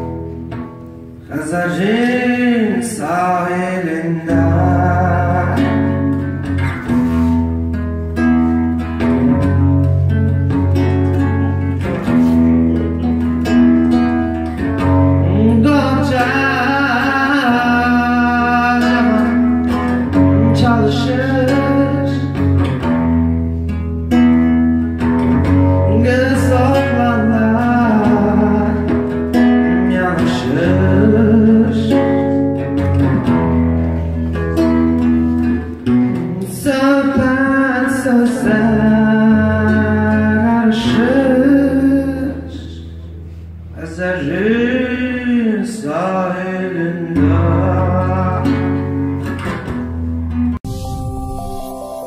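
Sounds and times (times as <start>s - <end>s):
acoustic guitar picked and strummed: 0.0s - 51.0s
man singing into a microphone: 1.2s - 7.4s, 14.6s - 22.7s, 25.4s - 34.4s, 35.4s - 43.0s, 43.7s - 49.7s.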